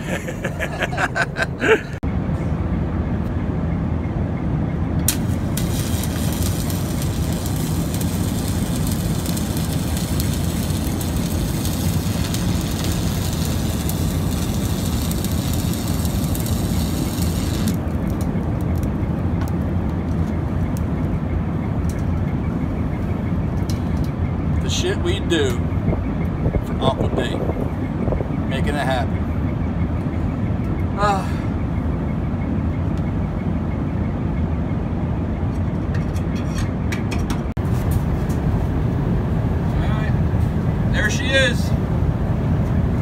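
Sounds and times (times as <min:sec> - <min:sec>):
low hum: 0:00.0 - 0:19.3
welding arc crackling: 0:05.1 - 0:18.9.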